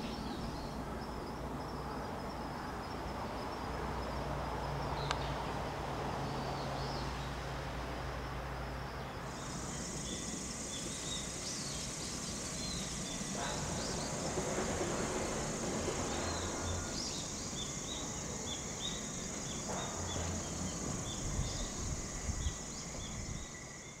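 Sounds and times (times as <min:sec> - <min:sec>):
insect chirps: 0:00.0 - 0:24.0
high-pitched insect drone: 0:08.6 - 0:24.0.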